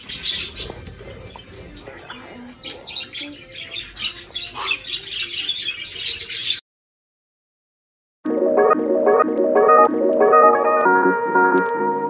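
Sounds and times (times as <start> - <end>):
budgerigars chattering: 0.0 - 6.6.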